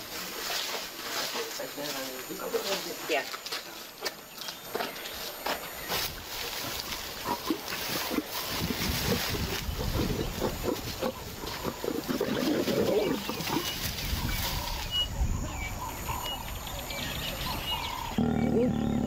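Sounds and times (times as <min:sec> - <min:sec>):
lions growling and snarling: 0:06.3 - 0:14.0, 0:17.5 - 0:19.0.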